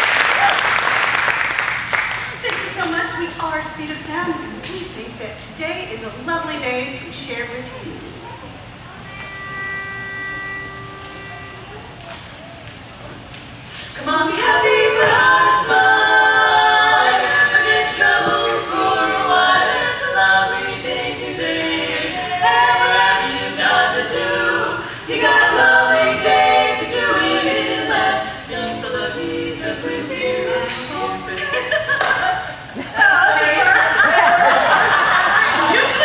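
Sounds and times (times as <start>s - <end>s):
women singing in harmony: 13.9s - 36.0s.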